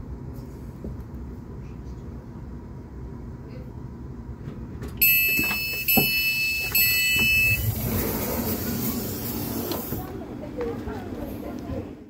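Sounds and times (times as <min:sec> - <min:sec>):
high electronic beeps: 0:05.0 - 0:07.8
rushing hiss of air: 0:07.6 - 0:10.0.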